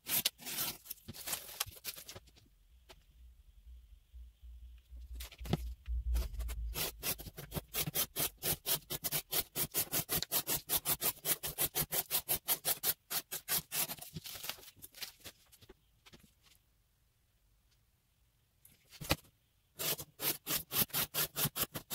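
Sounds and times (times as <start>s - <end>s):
knife slicing cardboard: 0.0s - 1.3s, 6.3s - 14.5s.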